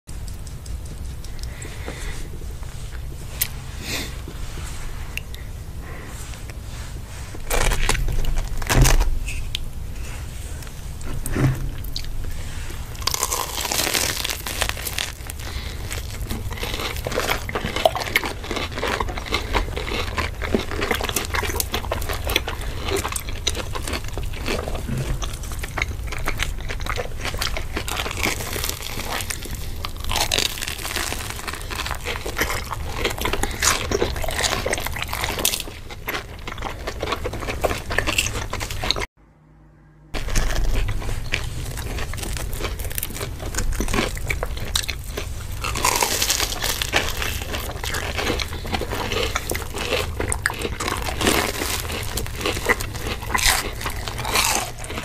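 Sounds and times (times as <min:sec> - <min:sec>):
crunching and chewing: 0:00.1 - 0:39.1, 0:40.2 - 0:55.0.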